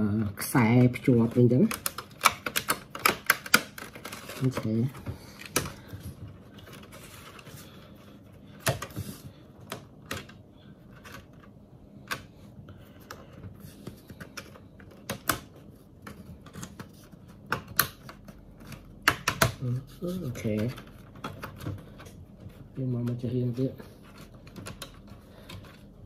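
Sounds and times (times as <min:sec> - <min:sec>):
plastic clips clicking and snapping: 0:00.8 - 0:04.7, 0:14.0 - 0:19.6.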